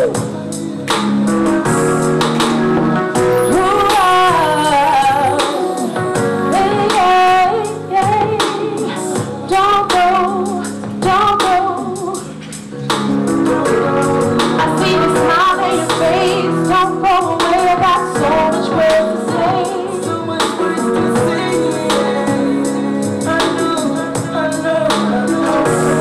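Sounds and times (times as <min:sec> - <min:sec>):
backing music with drum beat: 0:00.0 - 0:26.0
woman singing: 0:03.3 - 0:12.4, 0:13.6 - 0:26.0.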